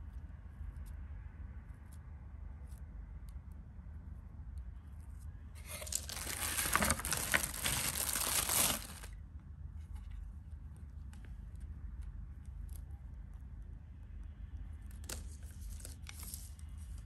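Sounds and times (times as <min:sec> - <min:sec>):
plastic bag crinkling: 0:05.6 - 0:09.1.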